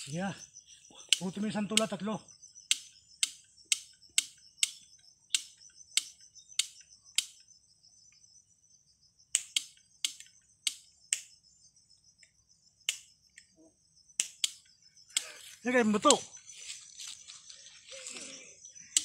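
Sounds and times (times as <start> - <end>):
high-pitched insect drone: 0.0 - 19.0
sharp chip-like clicks: 2.6 - 7.4, 9.3 - 11.4, 12.2 - 13.5, 14.1 - 15.4.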